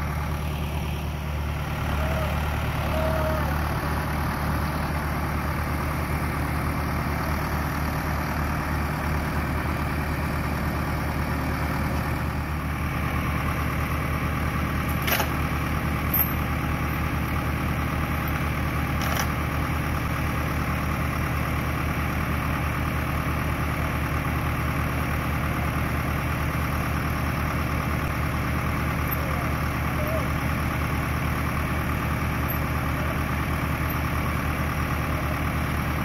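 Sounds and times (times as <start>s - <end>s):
tractor diesel engine idling: 0.0s - 36.0s.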